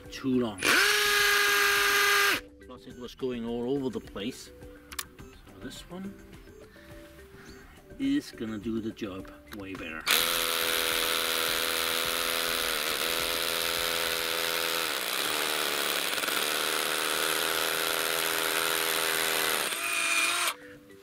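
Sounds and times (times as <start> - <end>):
hammer drill drilling into rock: 0.6 - 2.4, 10.1 - 20.6.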